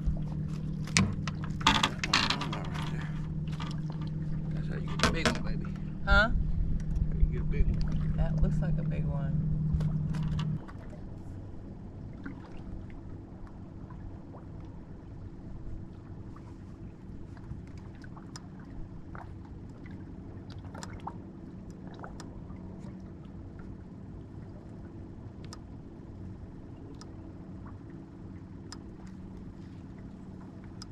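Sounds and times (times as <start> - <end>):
light splashes and ticks: 0.0 - 5.9, 6.7 - 9.0, 9.7 - 30.9
faint low hum: 0.0 - 30.9
waves lapping against boat hull: 0.0 - 30.9.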